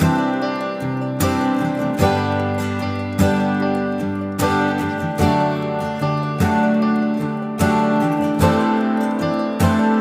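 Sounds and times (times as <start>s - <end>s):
strummed acoustic guitar: 0.0s - 10.0s.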